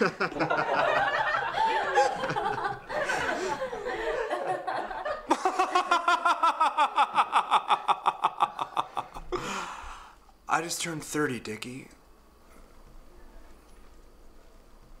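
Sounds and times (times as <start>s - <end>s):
person laughing: 0.0s - 9.8s.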